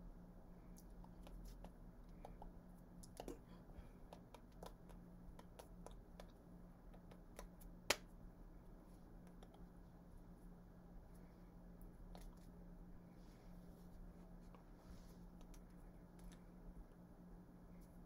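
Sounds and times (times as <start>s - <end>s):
faint low hum: 0.0s - 18.0s
hands clicking and tapping: 0.8s - 8.1s.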